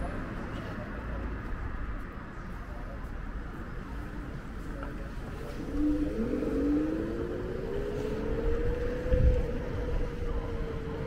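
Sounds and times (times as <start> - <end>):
electric scooter motor whining: 5.6 - 11.0.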